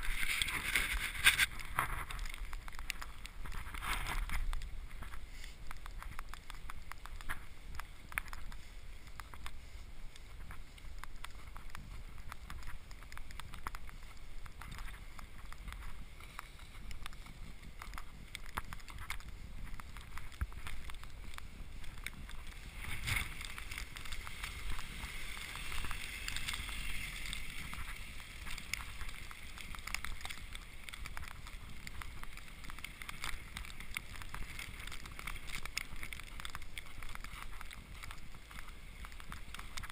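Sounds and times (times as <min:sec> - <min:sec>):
footsteps crunching in snow: 0:00.0 - 0:39.9
wind rumbling on microphone: 0:00.0 - 0:39.9.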